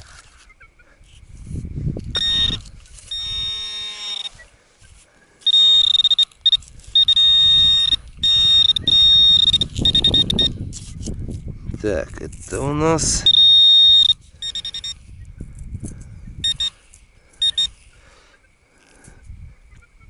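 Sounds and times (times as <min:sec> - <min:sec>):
metal detector wavering beeps: 0:02.1 - 0:04.5, 0:05.4 - 0:11.0, 0:13.0 - 0:15.2, 0:16.4 - 0:17.8.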